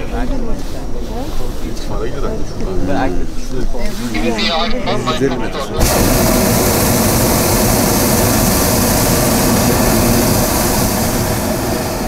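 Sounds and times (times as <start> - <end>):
propane burner blast: 4.1 - 12.0.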